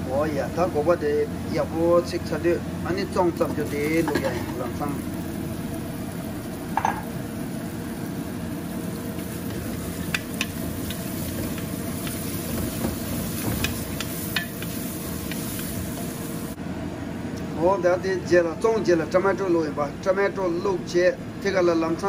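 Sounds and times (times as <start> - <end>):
onions sizzling in a pot: 0.0 - 16.6.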